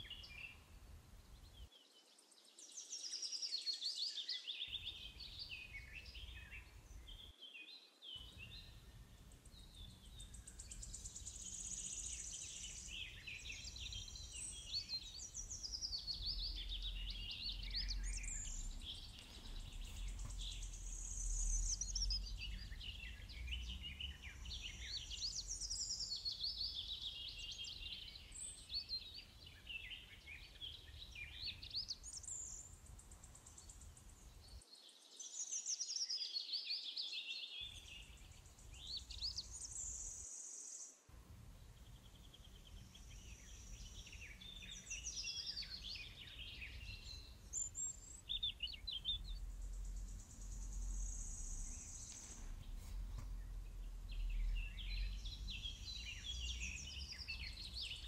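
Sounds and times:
birds singing and chirping: 3.0s - 34.6s, 35.3s - 40.8s, 41.8s - 58.0s
faint low rumble: 8.2s - 27.0s, 47.0s - 58.0s.

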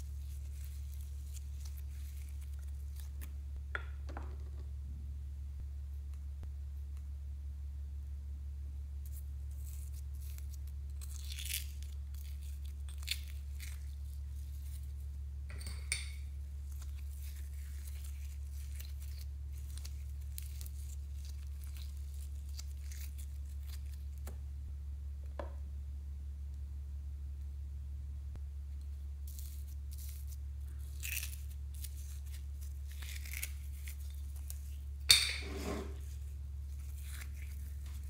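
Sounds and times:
slime and glitter crackling: 0.0s - 3.4s, 9.1s - 15.0s, 15.9s - 24.3s, 29.2s - 35.2s, 36.0s - 38.0s
steady low hum: 0.0s - 38.0s.

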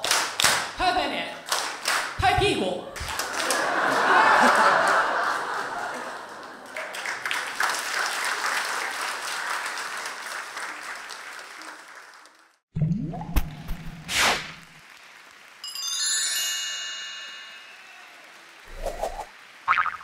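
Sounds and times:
audience applauding: 0.0s - 0.7s, 1.5s - 2.2s, 2.9s - 12.6s, 14.8s - 15.8s, 17.8s - 19.9s
sharp chime: 15.7s - 18.1s
rising sweep: 18.7s - 19.3s.

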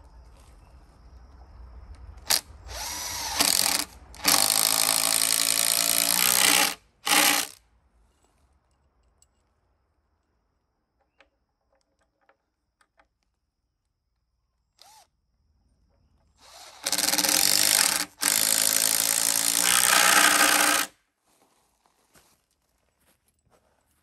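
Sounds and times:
power tool motor running: 2.3s - 7.6s, 16.4s - 20.9s.

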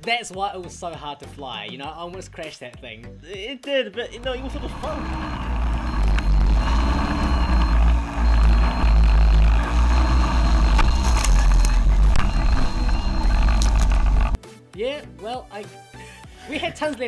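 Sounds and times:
drone motor and propeller noise: 4.2s - 14.4s
thin high whine: 4.2s - 14.4s
sharp clicks: 4.6s - 14.4s.

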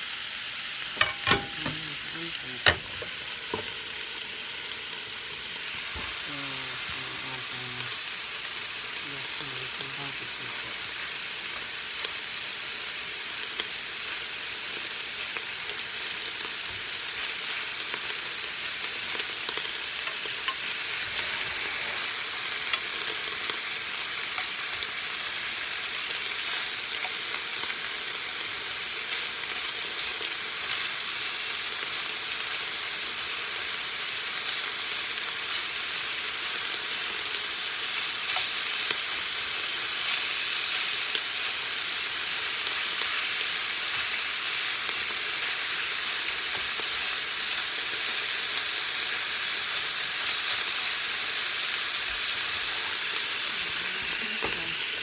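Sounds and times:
meat sizzling in a skillet: 0.0s - 55.0s
metal tongs clicking on pan: 1.0s - 1.8s.

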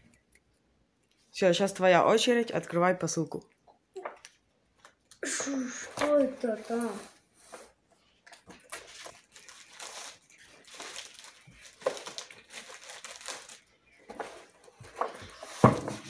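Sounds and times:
plastic packaging crinkling: 8.3s - 16.0s.

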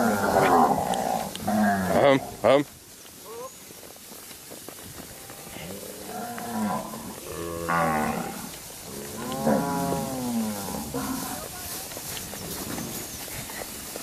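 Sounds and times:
cattle mooing: 5.4s - 11.4s.

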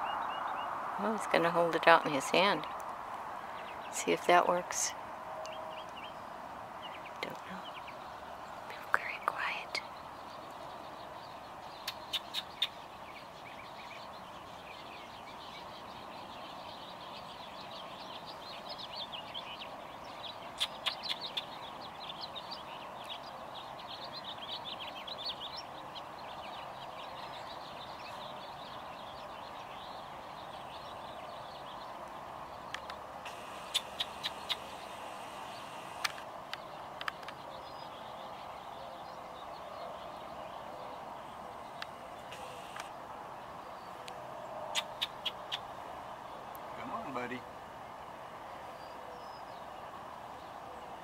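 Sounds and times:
small birds chirping: 0.0s - 51.0s
sharp clicks: 32.7s - 34.8s, 35.6s - 37.4s, 41.8s - 42.9s.

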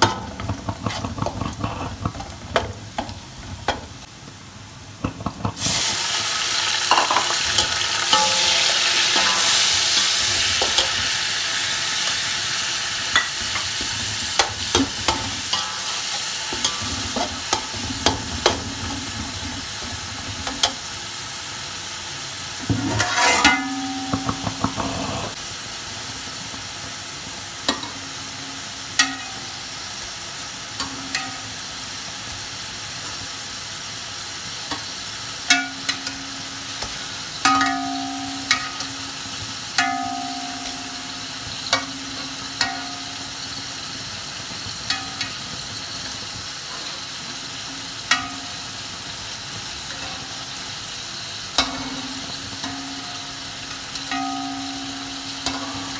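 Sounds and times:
oil sizzling in a pot: 0.0s - 55.9s
metal spoon clinking against pot: 6.9s - 9.7s.

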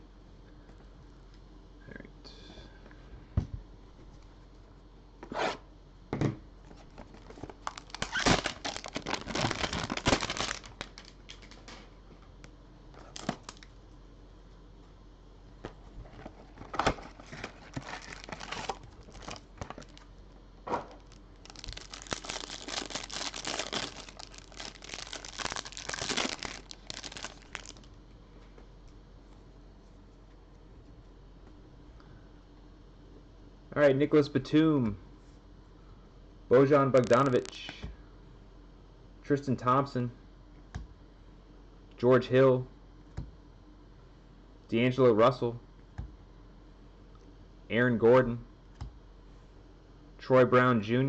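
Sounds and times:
cardboard tearing and crinkling: 7.1s - 11.6s, 13.0s - 13.7s, 16.1s - 20.1s, 20.9s - 27.9s.

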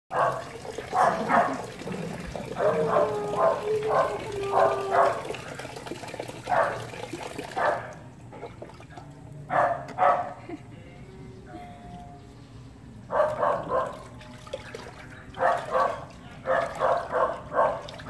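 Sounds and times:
tap water running into basin: 0.1s - 9.1s, 13.7s - 18.0s.

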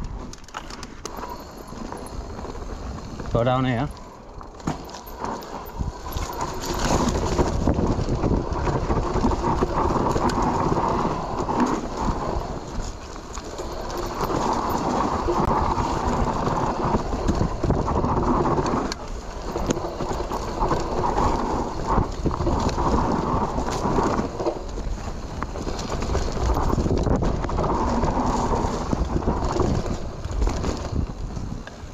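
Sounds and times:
bike tyre and frame rattle: 0.0s - 31.9s
wind on microphone: 1.0s - 31.9s.

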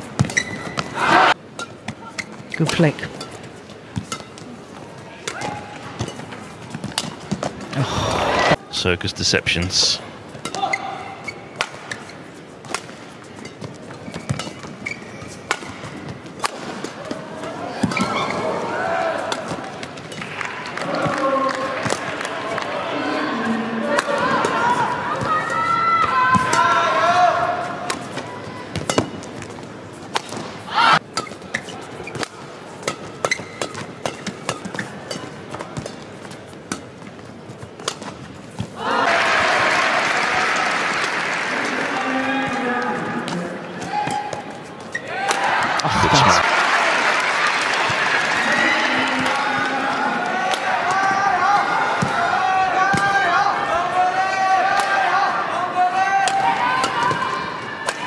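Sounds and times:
shoes squeaking on court: 0.0s - 1.0s, 1.6s - 7.7s, 10.2s - 16.4s, 17.4s - 18.5s, 27.9s - 38.8s, 44.0s - 45.1s
shoe squeaks on court: 0.2s - 0.9s, 10.5s - 12.4s, 13.3s - 15.9s, 33.2s - 35.2s
racket hitting shuttlecock: 5.2s - 7.6s, 11.6s - 14.8s, 15.5s - 17.2s, 27.8s - 29.5s, 30.1s - 36.0s, 37.8s - 38.8s
crowd murmur: 7.7s - 8.6s, 45.8s - 46.7s.

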